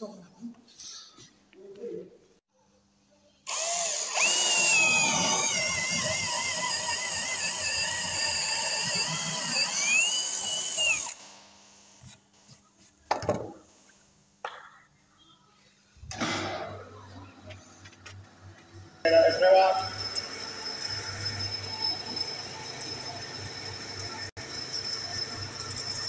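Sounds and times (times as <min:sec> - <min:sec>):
cordless drill boring into wood: 0:03.5 - 0:11.4.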